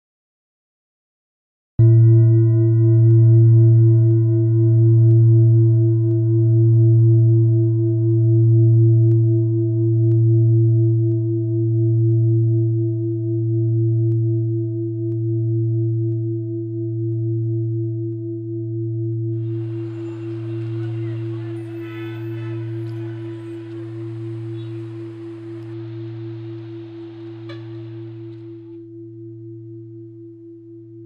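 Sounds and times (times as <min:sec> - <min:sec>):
background hiss: 0:19.4 - 0:28.8
ringing metallic drone: 0:19.4 - 0:28.8.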